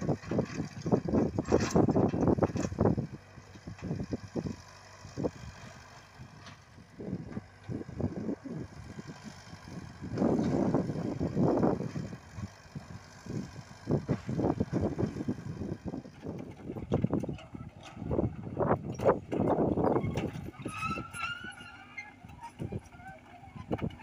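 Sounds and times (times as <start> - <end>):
diesel engine running: 0.0 - 24.0
excavator bucket and tracks clattering: 0.0 - 24.0.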